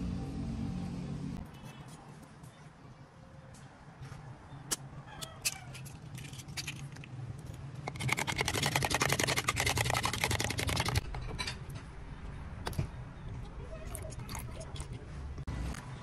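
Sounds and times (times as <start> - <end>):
spoon beating egg in plastic tub: 7.9 - 11.0.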